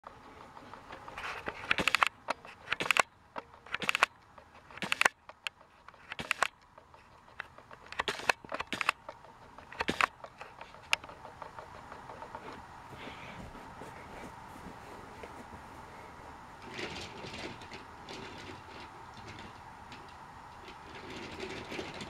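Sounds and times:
toy train wheels clacking: 0:00.0 - 0:12.8
faint steady hum: 0:00.0 - 0:22.0.

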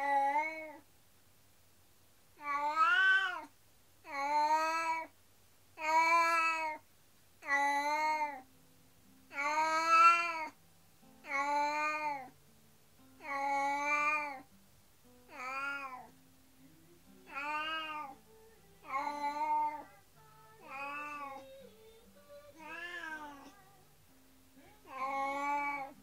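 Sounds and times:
cat meowing: 0:02.4 - 0:03.5, 0:04.1 - 0:05.1, 0:05.8 - 0:06.8, 0:07.4 - 0:08.4, 0:09.3 - 0:10.6, 0:11.3 - 0:12.3, 0:13.2 - 0:14.4, 0:15.3 - 0:16.1, 0:17.3 - 0:18.2, 0:18.8 - 0:19.9, 0:20.6 - 0:21.6, 0:22.6 - 0:23.6, 0:24.8 - 0:26.0.

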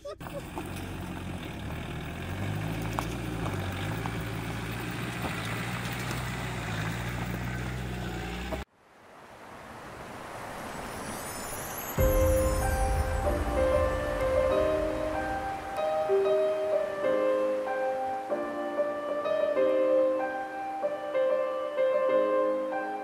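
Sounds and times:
car engine droning: 0:00.1 - 0:11.1, 0:12.0 - 0:16.0
river rushing over stones: 0:08.7 - 0:20.9.

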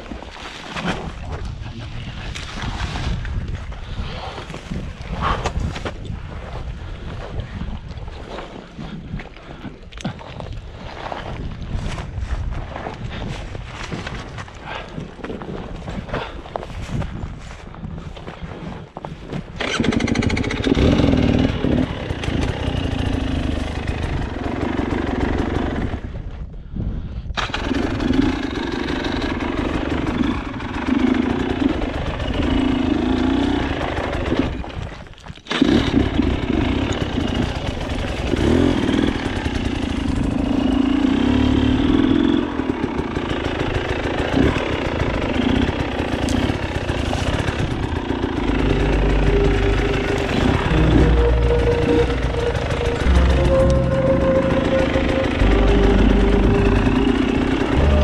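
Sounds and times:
motorcycle engine revving: 0:19.6 - 0:26.2, 0:27.4 - 0:34.7, 0:35.5 - 0:58.0.

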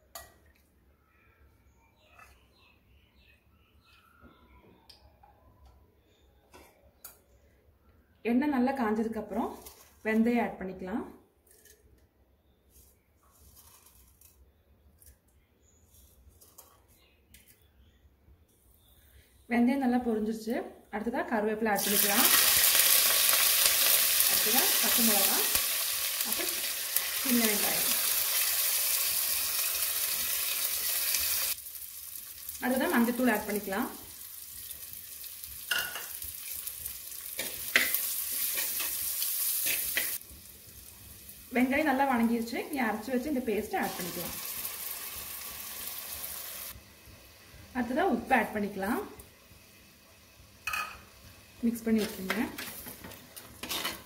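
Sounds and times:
seeds crackling in hot oil: 0:09.3 - 0:10.2, 0:13.2 - 0:15.2, 0:21.8 - 0:54.0
steel spoon scraping a pot: 0:52.0 - 0:54.0.

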